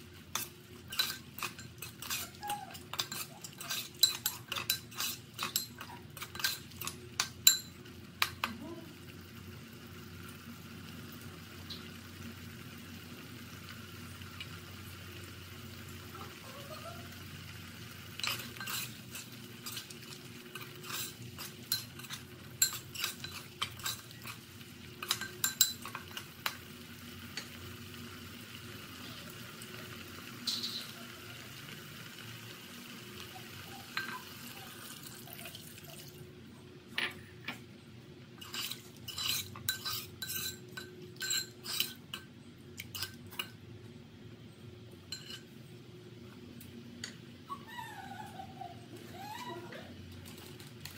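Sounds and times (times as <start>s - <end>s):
metal ladle scraping a pot: 0.3s - 6.9s, 18.2s - 24.4s, 38.4s - 42.0s.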